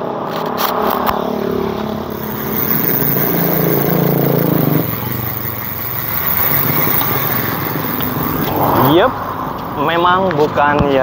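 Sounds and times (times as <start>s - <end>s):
bicycle freewheel ratchet clicking: 2.1s - 9.1s.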